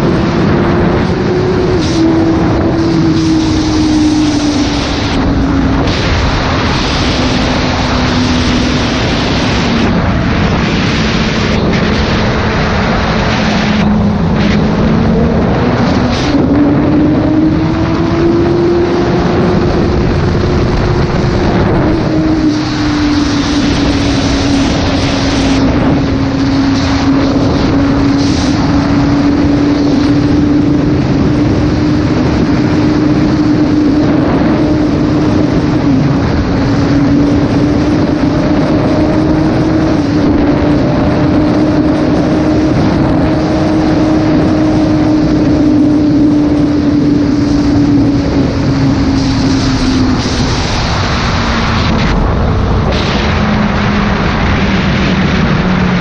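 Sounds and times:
motorcycle engine at speed: 0.0 - 56.0
wind rush on microphone: 0.0 - 56.0.

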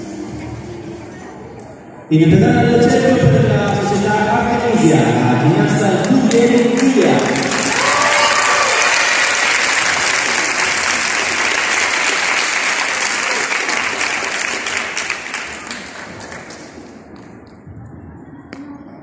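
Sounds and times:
audience applauding: 5.8 - 17.2.

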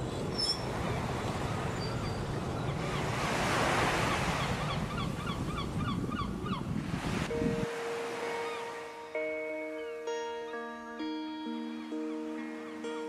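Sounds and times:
wind roaring on microphone: 0.0 - 7.8.

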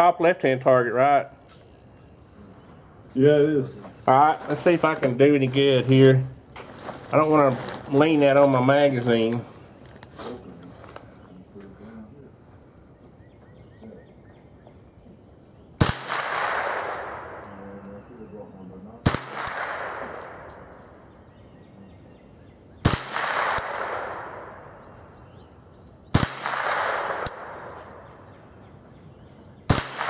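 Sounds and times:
rifle shots with echo: 15.8 - 17.8, 19.0 - 21.2, 22.8 - 25.2, 26.1 - 28.3, 29.6 - 30.0.

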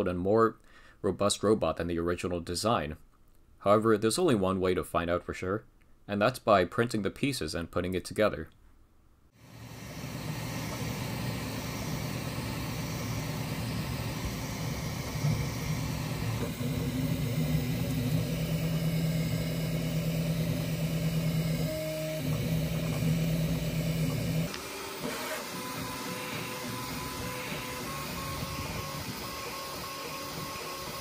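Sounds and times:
fans whirring: 9.4 - 31.0
stepper motors humming: 9.4 - 31.0.

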